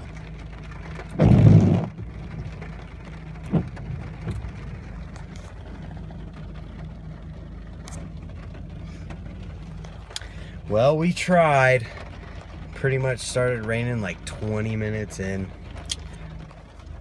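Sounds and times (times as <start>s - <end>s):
engine idling hum: 0.0s - 17.0s
heavy rain on car: 0.0s - 17.0s
loud thump: 1.2s - 2.0s.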